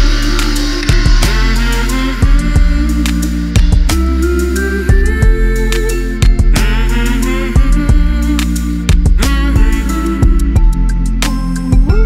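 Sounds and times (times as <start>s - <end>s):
drum hits: 0.0s - 2.9s, 3.6s - 4.0s
held instrumental notes: 0.0s - 12.0s.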